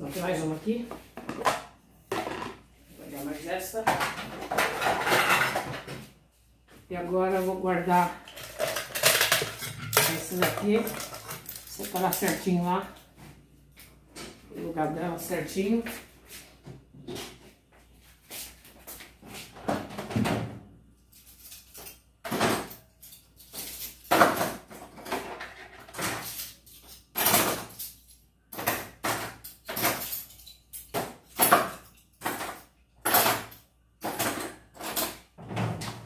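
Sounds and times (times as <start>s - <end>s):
kitchenware knocking and clattering: 1.0s - 2.7s, 3.7s - 6.1s, 7.9s - 12.4s, 19.6s - 20.6s, 21.3s - 36.0s.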